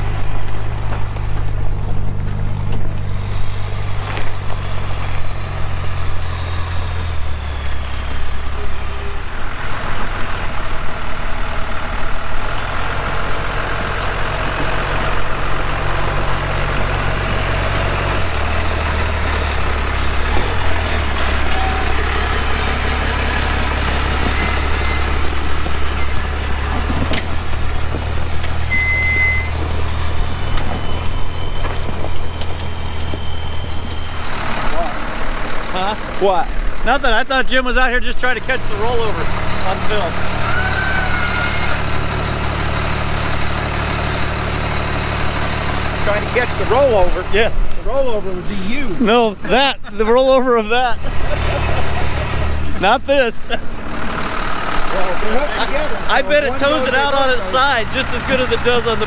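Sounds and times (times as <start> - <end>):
vehicle engines humming: 0.0 - 59.0
short high beep: 28.7 - 29.6.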